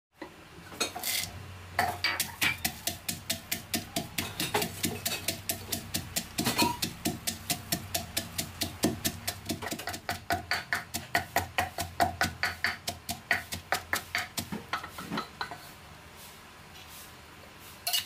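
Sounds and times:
pestle pounding in a mortar: 0:01.8 - 0:15.6.

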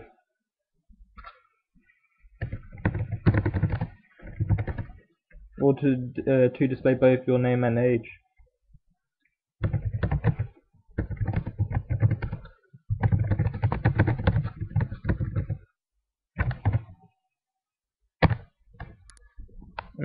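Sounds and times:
typing on computer keyboard: 0:02.4 - 0:05.0, 0:09.6 - 0:15.6, 0:16.4 - 0:17.0.

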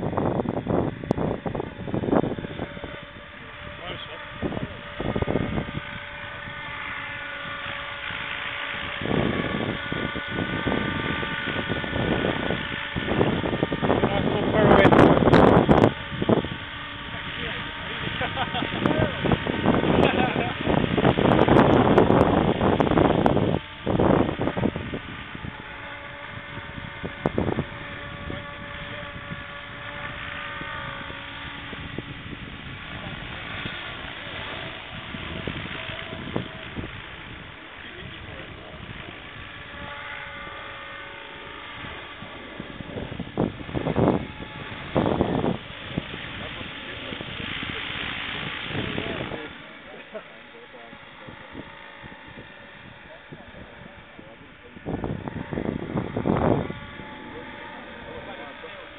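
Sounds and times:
model helicopter whine: 0:00.0 - 0:58.9
wind rumbling on microphone: 0:00.0 - 0:58.9.

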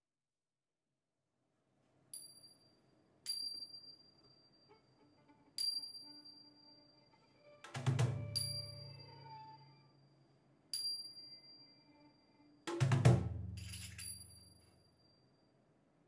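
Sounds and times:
small bell ringing: 0:02.1 - 0:04.8, 0:05.6 - 0:06.8, 0:08.2 - 0:09.8, 0:10.7 - 0:12.1, 0:13.6 - 0:15.6.

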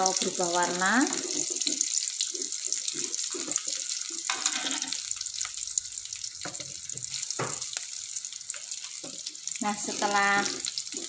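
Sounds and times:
vegetables sizzling in hot oil: 0:00.0 - 0:11.0
metal ladle scraping a wok: 0:01.1 - 0:05.1.

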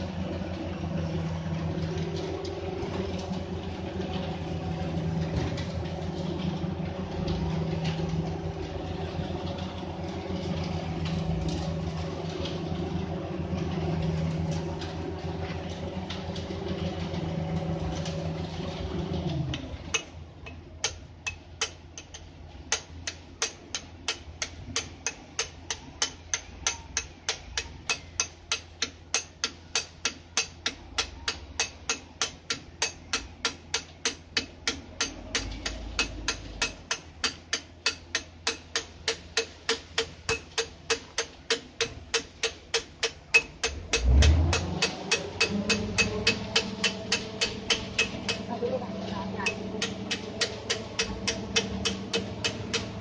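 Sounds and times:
engine running: 0:00.0 - 0:53.0
sharp metal taps: 0:19.9 - 0:48.5, 0:49.4 - 0:53.0.

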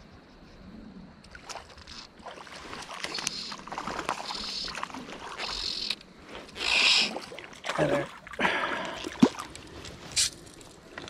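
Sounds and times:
fish splashing at the surface: 0:01.3 - 0:05.9, 0:06.6 - 0:10.3
fly reel clicking: 0:05.4 - 0:07.0.

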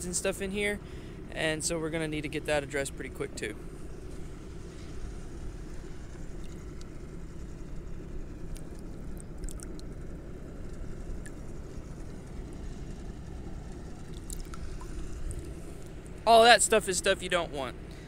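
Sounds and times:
steady low rumble: 0:00.0 - 0:18.0
water splashes and drips: 0:09.4 - 0:09.8, 0:14.1 - 0:15.5.

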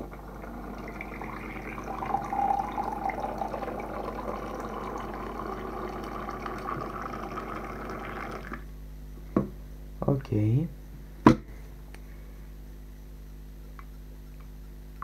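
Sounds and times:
water pouring into mug: 0:00.0 - 0:08.6.

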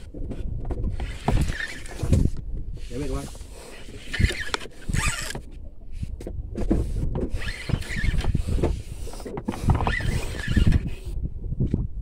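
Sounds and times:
fishing reel whining: 0:03.8 - 0:05.4, 0:07.3 - 0:08.6, 0:09.7 - 0:11.0.

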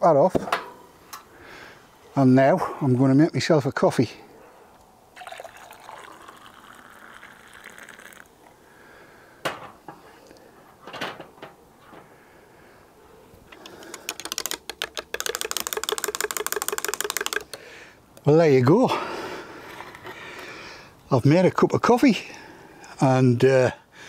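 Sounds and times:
liquid pouring into mug: 0:05.2 - 0:08.4.

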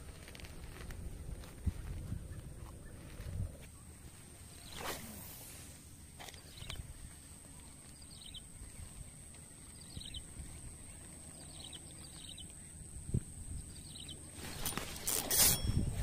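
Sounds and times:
wind rumble on microphone: 0:00.0 - 0:03.7, 0:12.3 - 0:16.0
small bird chirping: 0:06.2 - 0:16.0.

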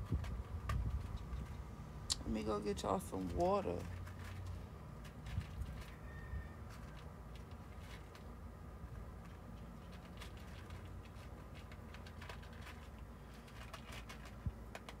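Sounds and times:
cats crunching food: 0:03.6 - 0:15.0.

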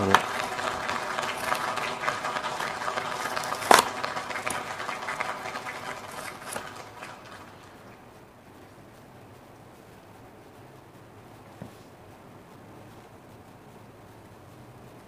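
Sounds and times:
plastic sharp crack: 0:00.0 - 0:07.5
plastic blister crinkling: 0:00.0 - 0:08.1.

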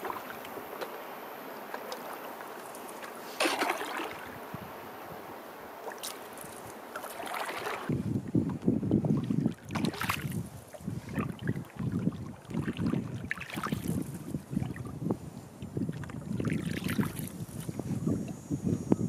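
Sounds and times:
paddle splashes: 0:00.0 - 0:15.0, 0:15.6 - 0:17.8
water lapping along canoe hull: 0:00.0 - 0:18.5
wind buffeting microphone: 0:03.9 - 0:05.4, 0:06.4 - 0:19.0.

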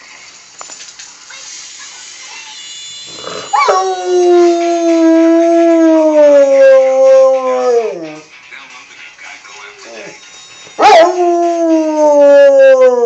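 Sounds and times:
dog howling: 0:03.1 - 0:08.2.

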